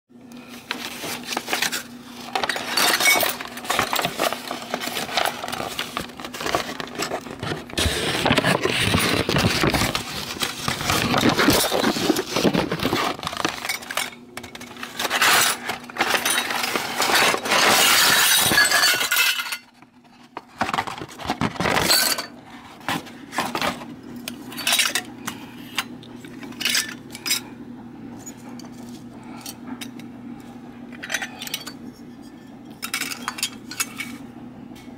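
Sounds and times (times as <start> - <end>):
paper bag crinkling: 0.7 - 13.9.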